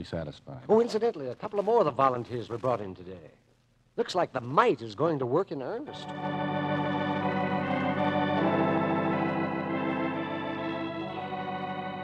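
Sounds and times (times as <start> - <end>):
organ chords: 5.8 - 12.0.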